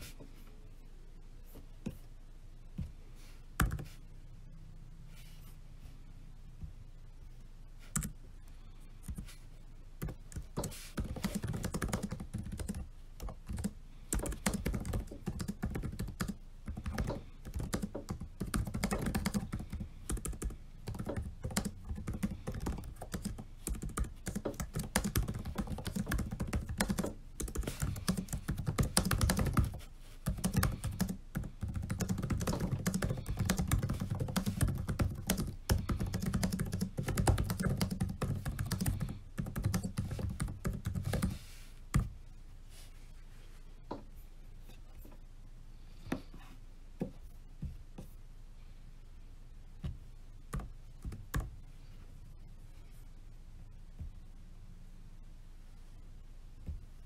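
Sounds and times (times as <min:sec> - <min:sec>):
fast typing on laptop keyboard: 0:10.0 - 0:41.4, 0:50.6 - 0:51.5.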